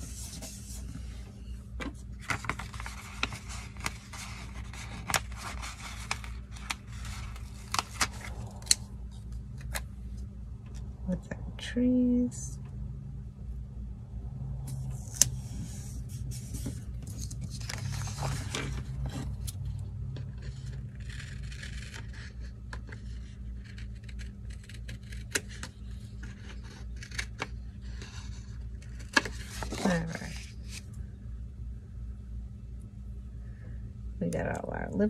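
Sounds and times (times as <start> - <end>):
paper rustling and scraping: 0.0 - 9.8, 14.7 - 30.9.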